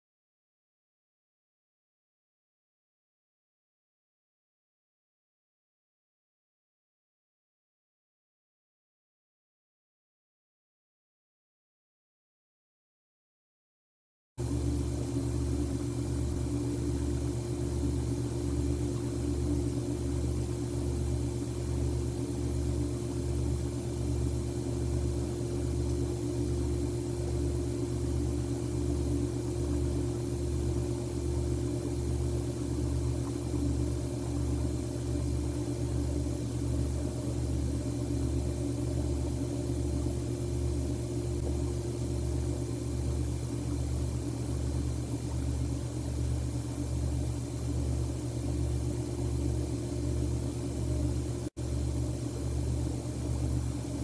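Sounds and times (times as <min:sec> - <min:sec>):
low hum with pulsing throb: 0:14.4 - 0:54.0.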